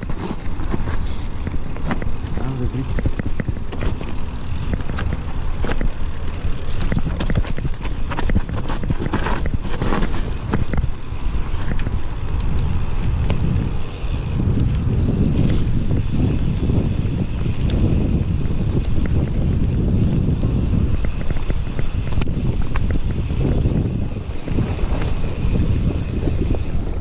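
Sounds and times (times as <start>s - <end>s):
clicks and knocks over bumps: 0.0s - 13.6s, 17.5s - 19.8s, 20.8s - 26.1s
bike chain and frame rattling: 0.0s - 27.0s
bike tyres on dirt: 0.0s - 27.0s
wind buffeting microphone: 0.0s - 27.0s.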